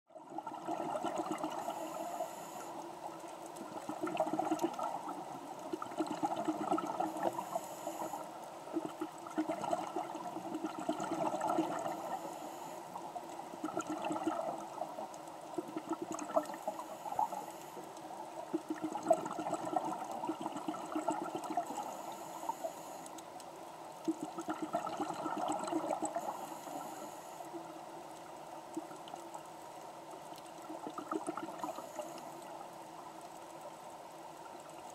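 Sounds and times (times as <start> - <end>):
exhaled bubbles underwater: 0.1 - 23.0, 24.0 - 29.6, 30.4 - 33.2
regulator hiss on inhale: 1.4 - 3.1, 7.0 - 8.8, 11.6 - 13.6, 16.5 - 18.0, 21.6 - 23.3, 26.0 - 27.8, 31.6 - 32.6.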